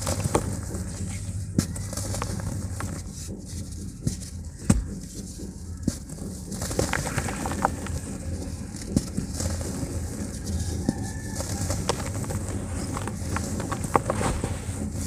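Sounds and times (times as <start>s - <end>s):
steady low hum: 0.0s - 15.0s
cement chunks snapping and crumbling: 6.6s - 9.7s, 10.5s - 14.5s.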